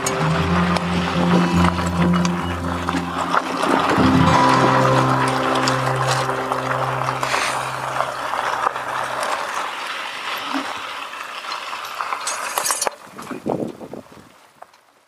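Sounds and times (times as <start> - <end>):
low steady hum: 0.0 - 10.7
tyres crunching on gravel: 0.0 - 15.0.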